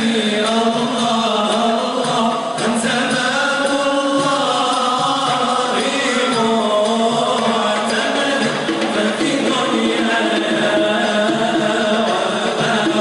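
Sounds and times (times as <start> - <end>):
men chanting in unison: 0.0 - 13.0.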